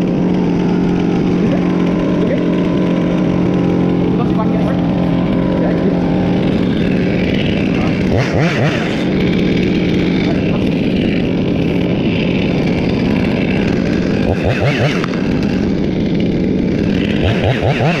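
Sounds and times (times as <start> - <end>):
chainsaw idling and revving: 0.0 - 18.0.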